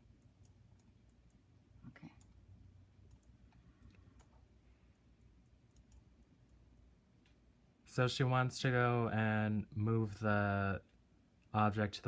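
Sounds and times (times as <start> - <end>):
low steady hum: 0.0 - 12.0
computer mouse clicks: 3.0 - 4.4, 5.4 - 6.6.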